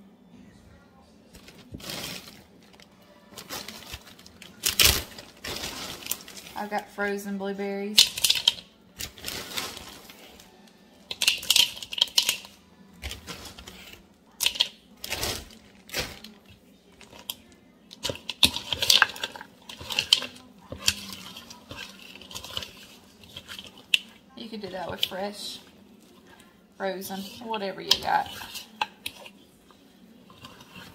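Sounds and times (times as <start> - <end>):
fork scraping a mixing bowl: 18.0 - 30.9.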